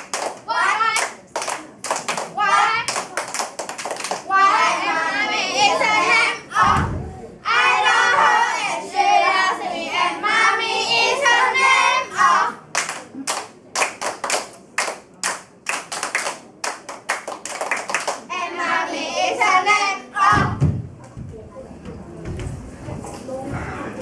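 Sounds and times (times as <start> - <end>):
rhythmic hand clapping: 0.0 - 4.7, 12.7 - 18.3
children singing: 4.3 - 12.6.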